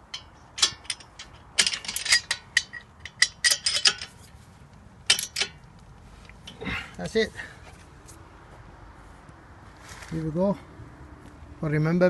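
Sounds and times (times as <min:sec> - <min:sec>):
tools clinking: 0:00.0 - 0:04.4, 0:05.0 - 0:06.6.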